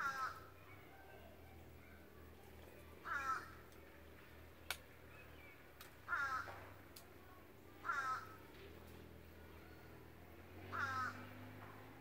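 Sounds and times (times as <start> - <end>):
bird harsh calls: 0.0 - 2.0, 2.8 - 3.7, 4.6 - 6.8, 7.8 - 8.4, 9.4 - 11.6.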